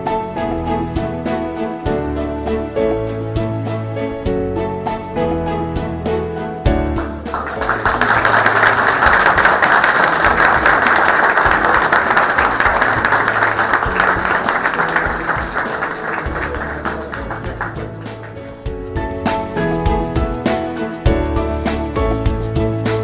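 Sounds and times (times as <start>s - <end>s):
background music: 0.0s - 23.0s
people applauding: 7.0s - 18.7s.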